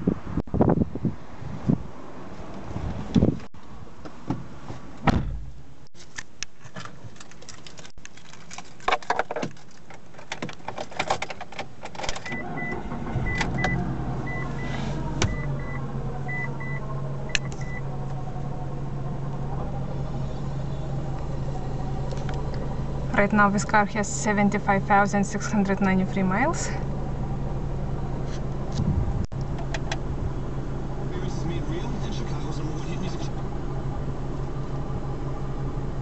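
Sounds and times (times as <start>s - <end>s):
clicks and handling noise: 5.8s - 12.4s
car engine starting and idling: 9.6s - 36.0s
dashboard warning chime: 12.3s - 17.9s.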